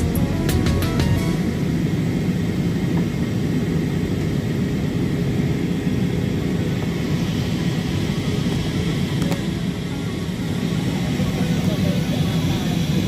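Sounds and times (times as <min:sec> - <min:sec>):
airliner cabin engine rush: 0:00.0 - 0:13.0.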